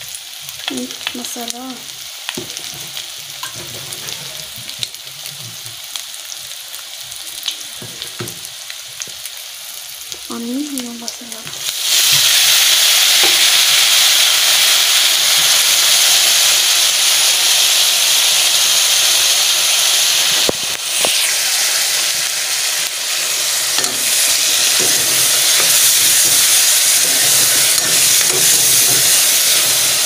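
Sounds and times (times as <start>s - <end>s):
chicken sizzling in hot oil: 0.0s - 30.0s
metal spoon stirring in pan: 23.6s - 30.0s.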